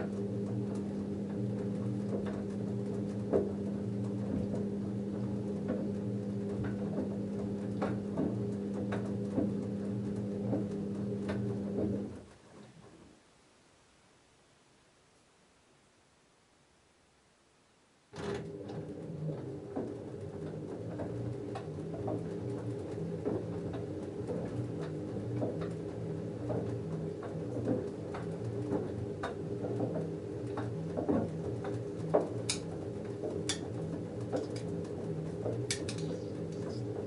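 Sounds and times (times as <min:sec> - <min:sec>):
washing machine motor humming: 0:00.0 - 0:12.4, 0:18.1 - 0:37.0
clicks and knocks: 0:26.4 - 0:37.0.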